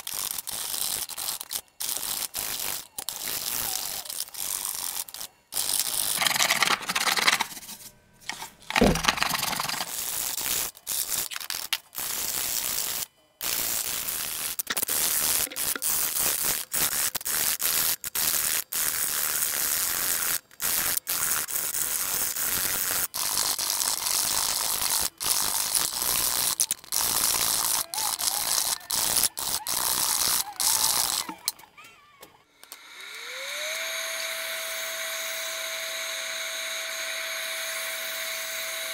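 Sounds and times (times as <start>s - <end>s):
drum sander motor humming: 32.7s - 38.9s.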